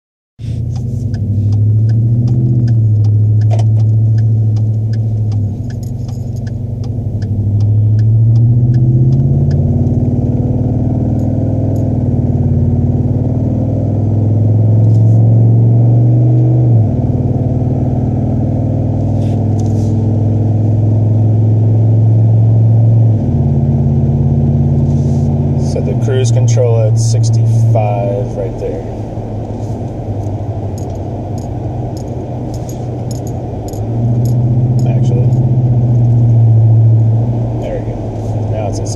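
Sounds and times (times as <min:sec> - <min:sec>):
truck engine rumble: 0:00.4 - 0:38.9
light ticking: 0:00.6 - 0:09.7.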